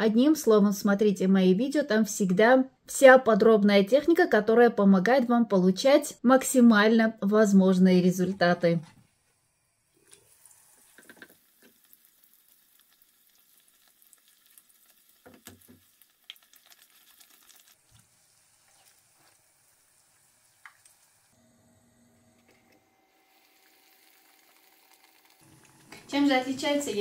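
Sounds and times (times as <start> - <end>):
dough frying in oil: 9.8 - 21.4, 23.1 - 27.0.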